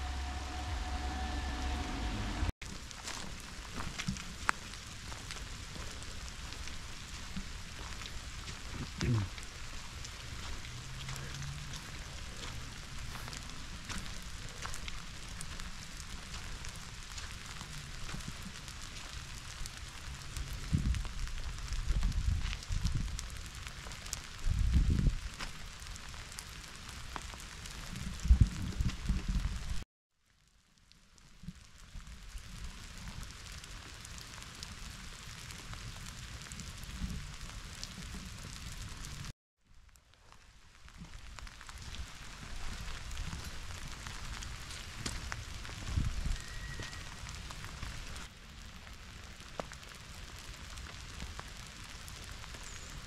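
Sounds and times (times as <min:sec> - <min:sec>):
low rumbling bursts: 0:00.0 - 0:02.5
steady rain: 0:00.0 - 0:29.8, 0:30.4 - 0:53.0.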